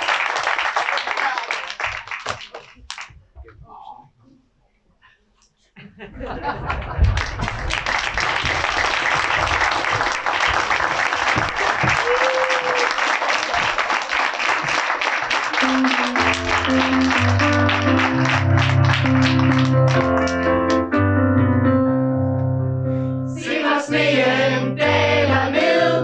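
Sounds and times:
audience applauding: 0.0 - 3.1, 6.7 - 20.8
keyboard music with bass line: 15.6 - 23.3.

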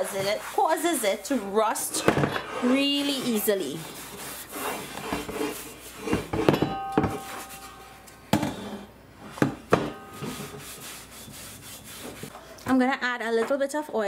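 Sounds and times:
towel rubbing over pan: 0.0 - 12.3
cast iron wok knocking: 6.3 - 7.6, 9.4 - 10.4.

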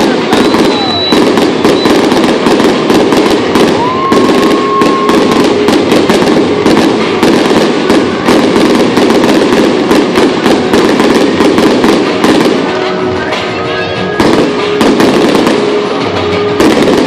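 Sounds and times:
rising firework whistle: 0.0 - 2.4, 3.5 - 7.2
fireworks crackling and popping: 0.0 - 17.0.

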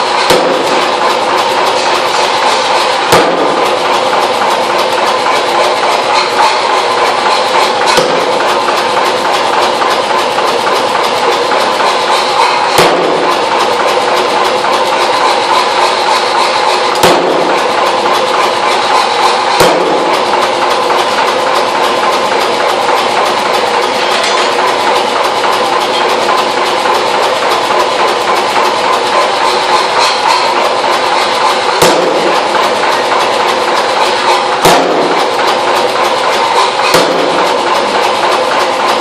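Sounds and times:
sharp hammer bangs: 0.0 - 9.6, 11.5 - 15.0, 15.9 - 22.4, 31.7 - 35.6, 36.3 - 38.1
power hammer blows on hot steel: 0.0 - 39.0.

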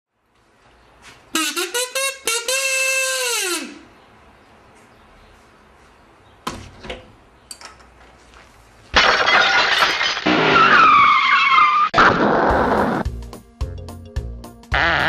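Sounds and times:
crash: 8.9 - 12.8
tyres skidding and squealing: 9.6 - 13.0.

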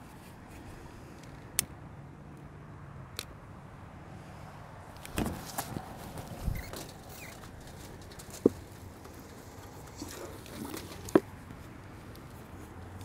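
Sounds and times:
knocks and rustles: 5.0 - 12.3.

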